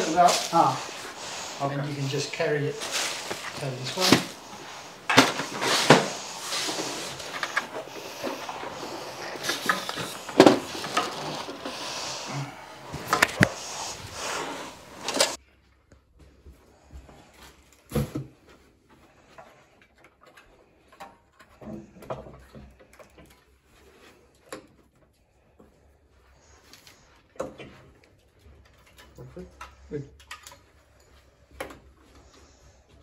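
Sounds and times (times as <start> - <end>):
steady hiss: 0.0 - 15.4.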